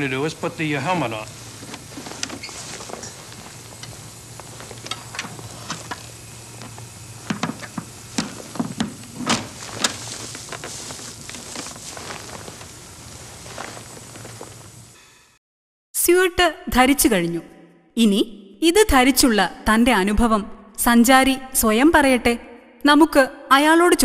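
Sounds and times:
low hum with hiss: 0.0s - 15.4s
helmet clicks and knocks: 6.6s - 12.2s.

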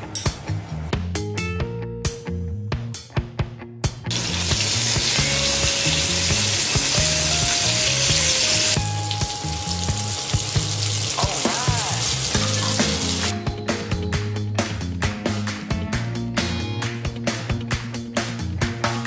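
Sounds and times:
background music: 0.0s - 19.0s
chicken sizzling in a wok: 4.1s - 13.3s.

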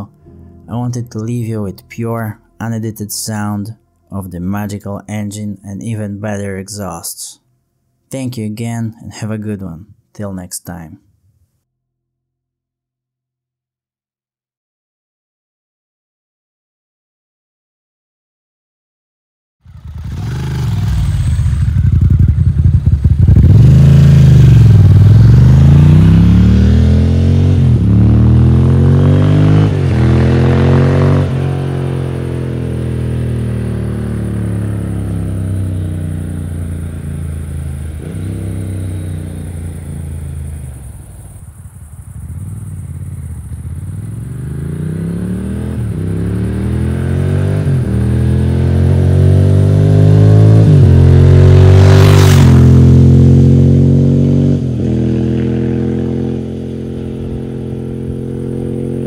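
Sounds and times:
motorcycle engine running: 19.6s - 59.0s.

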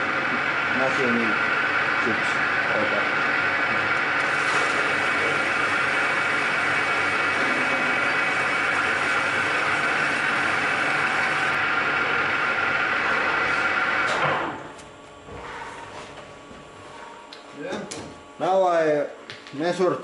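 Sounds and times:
lathe skim cut: 0.0s - 14.6s
lathe running with steady whine: 0.0s - 15.2s.

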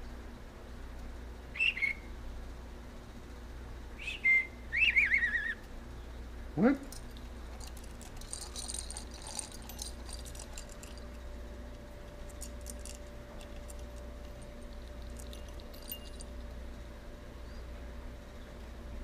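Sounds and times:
faint steady hum: 0.0s - 19.0s
bells jingling: 6.9s - 11.3s, 12.1s - 16.5s.

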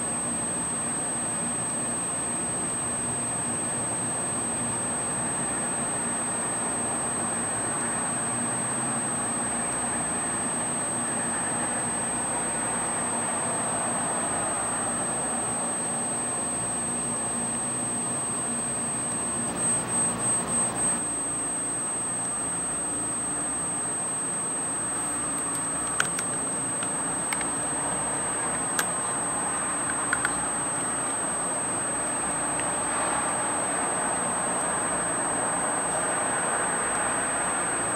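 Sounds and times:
high-pitched electronic whine: 0.0s - 37.9s
low city hum: 24.4s - 37.7s
sharp clicks: 25.3s - 27.6s, 28.5s - 29.2s, 29.8s - 30.5s.

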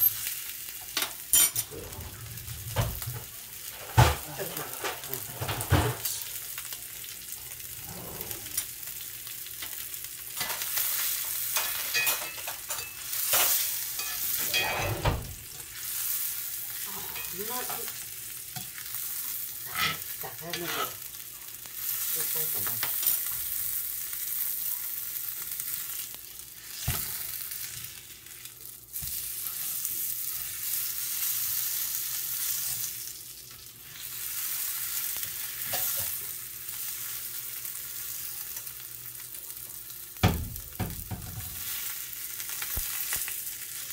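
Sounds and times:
steak sizzling in a skillet: 0.0s - 43.9s
utensils clinking against a pan: 0.8s - 1.7s, 9.6s - 15.3s, 16.7s - 19.0s, 19.6s - 21.1s, 35.2s - 36.3s.

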